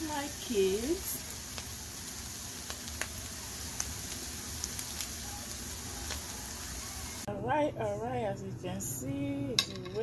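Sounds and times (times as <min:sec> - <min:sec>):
eggs sizzling in a frying pan: 0:00.0 - 0:07.3.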